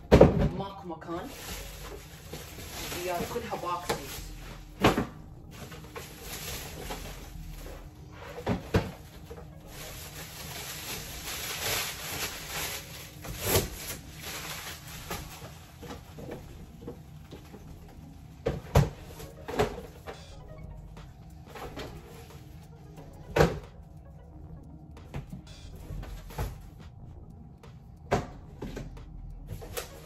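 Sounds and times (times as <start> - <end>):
plastic wrap rustling: 1.1 - 18.2, 29.5 - 30.0.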